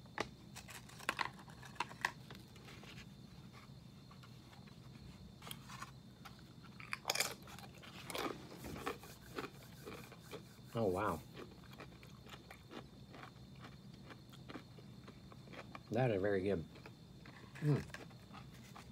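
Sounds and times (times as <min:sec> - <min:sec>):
chip crunching between teeth: 0:06.7 - 0:15.9.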